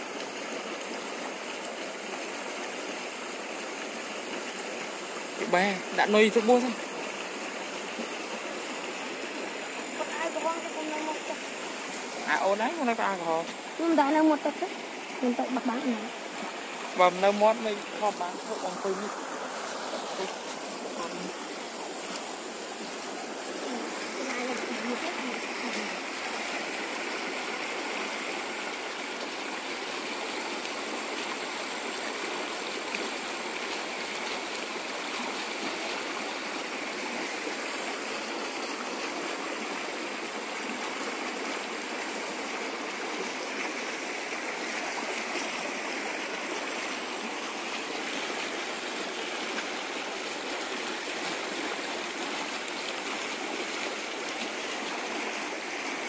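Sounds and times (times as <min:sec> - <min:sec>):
river current rushing: 0:00.0 - 0:56.0.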